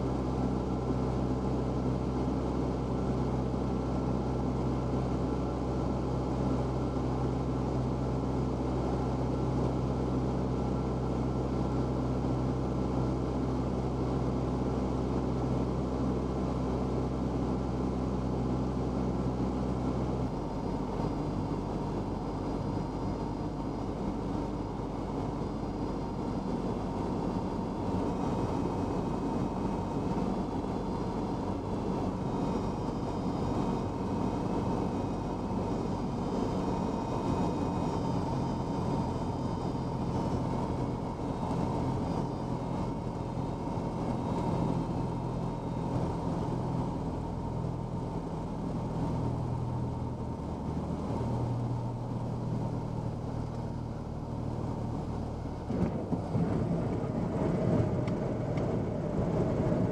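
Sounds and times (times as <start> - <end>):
small plane engine and propeller: 0.0 - 59.9
rushing airflow hum: 47.7 - 59.9.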